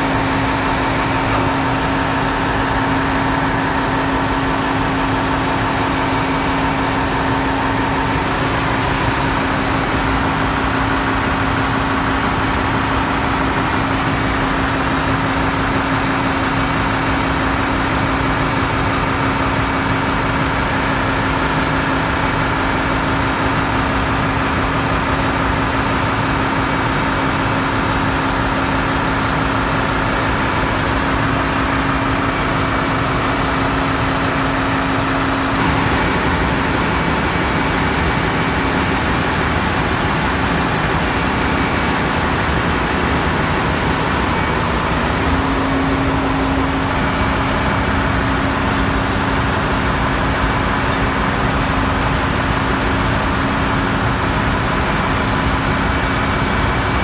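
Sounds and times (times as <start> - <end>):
diesel machinery running: 0.0 - 57.0.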